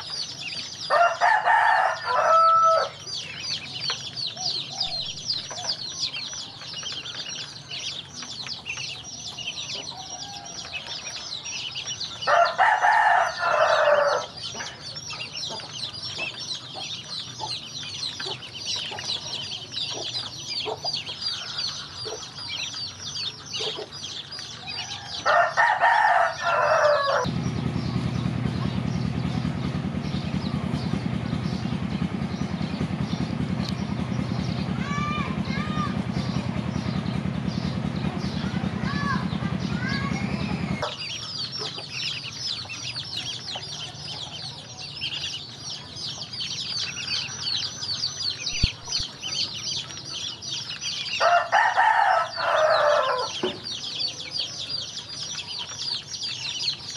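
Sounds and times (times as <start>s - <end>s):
ducklings peeping: 0.0s - 56.9s
rooster crowing: 0.9s - 3.0s, 9.8s - 11.0s, 12.2s - 14.4s, 24.5s - 27.3s, 51.2s - 53.4s
steady low rumble: 26.0s - 51.2s.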